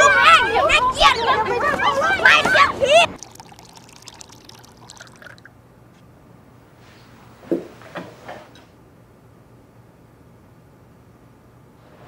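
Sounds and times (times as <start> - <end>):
milk pouring into a glass: 3.1 - 5.5.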